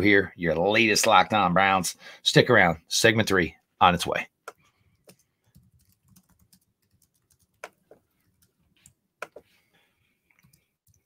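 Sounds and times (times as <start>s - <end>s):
typing on computer keyboard: 4.5s - 9.4s.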